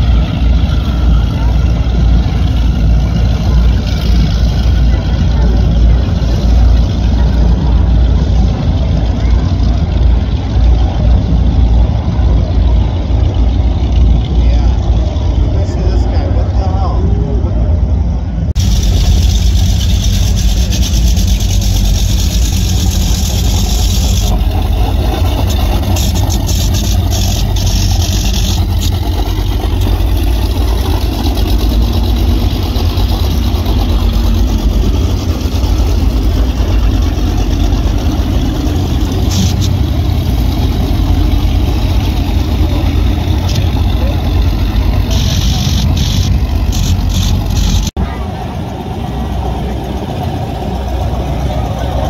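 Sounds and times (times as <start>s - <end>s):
boat engines deep rumble: 0.0s - 52.0s.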